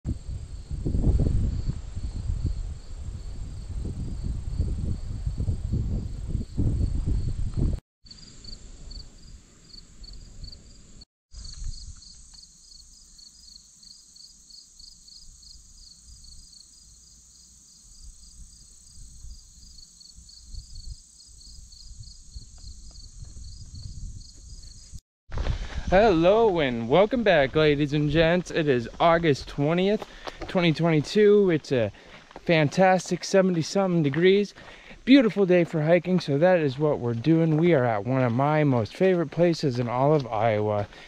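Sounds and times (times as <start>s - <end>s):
wind rumble on microphone: 0.1s - 7.8s, 20.4s - 26.2s
insects chirping: 0.1s - 25.0s
steady high insect buzz: 0.1s - 25.0s.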